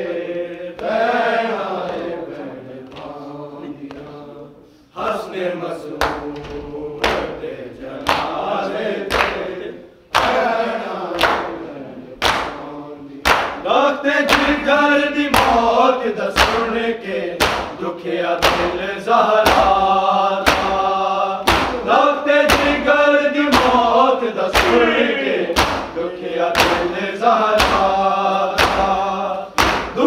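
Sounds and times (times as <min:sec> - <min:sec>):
voices chanting together: 0:00.0 - 0:30.0
sharp rhythmic thumps: 0:05.9 - 0:30.0.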